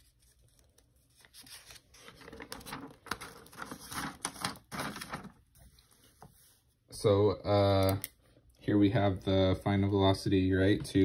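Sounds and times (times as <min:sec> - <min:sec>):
paper rustling: 0:00.0 - 0:06.7.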